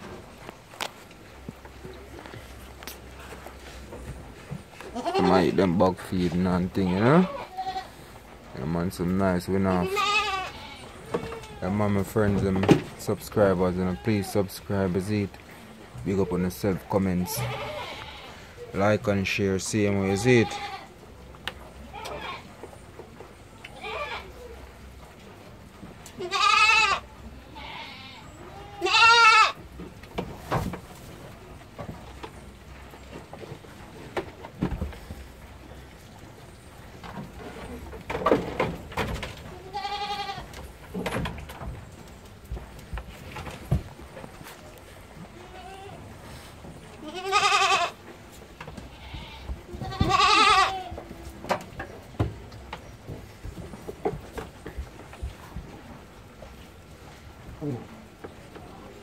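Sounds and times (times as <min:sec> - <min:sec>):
goat kids bleating: 0:04.6 - 0:05.8, 0:06.6 - 0:08.3, 0:09.6 - 0:12.1, 0:13.6 - 0:14.5, 0:17.1 - 0:18.7, 0:19.9 - 0:21.1, 0:21.7 - 0:22.6, 0:23.6 - 0:24.8, 0:26.0 - 0:29.7, 0:39.4 - 0:40.8, 0:45.2 - 0:51.4.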